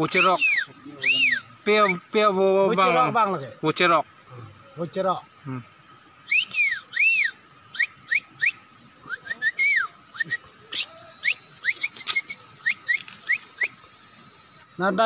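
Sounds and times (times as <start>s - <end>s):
man whistling animal call: 0.0s - 2.1s, 6.2s - 13.9s.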